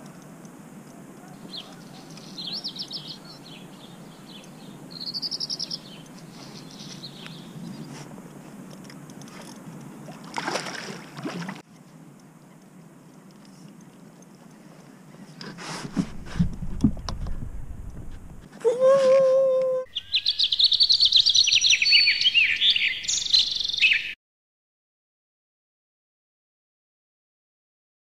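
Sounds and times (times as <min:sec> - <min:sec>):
low steady background noise: 0:00.0 - 0:18.7.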